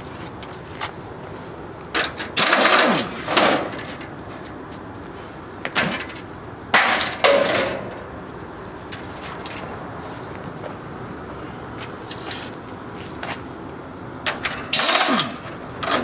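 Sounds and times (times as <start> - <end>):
pneumatic wrench bursts: 2.4 - 3.6, 14.7 - 15.5.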